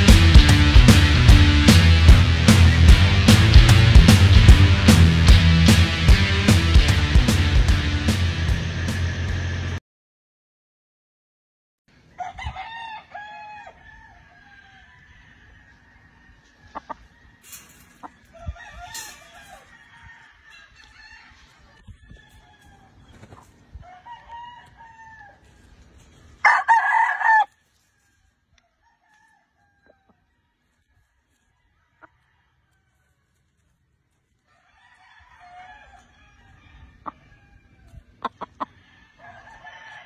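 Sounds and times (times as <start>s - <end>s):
roosters crowing: 12.0s - 33.4s, 34.4s - 40.0s
chickens clucking: 16.0s - 19.2s, 20.5s - 23.8s, 35.9s - 39.0s.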